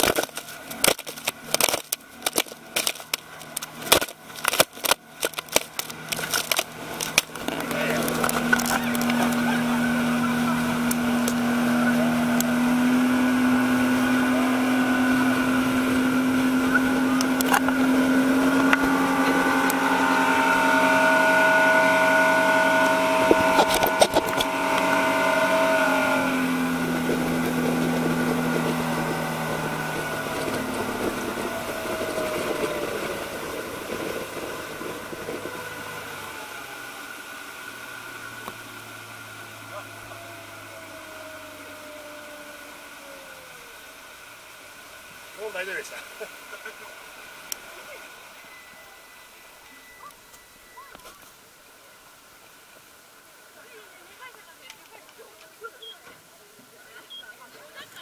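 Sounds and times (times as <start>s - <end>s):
boat engine running hard: 0.0s - 44.2s
water rushing along hull: 0.0s - 58.0s.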